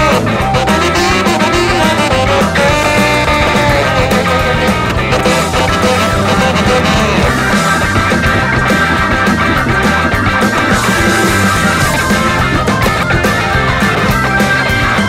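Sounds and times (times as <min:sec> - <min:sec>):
saxophones playing held notes: 0:00.0 - 0:08.5
driving bass and drums: 0:00.0 - 0:15.0
up-tempo jump-blues rock music: 0:00.0 - 0:15.0.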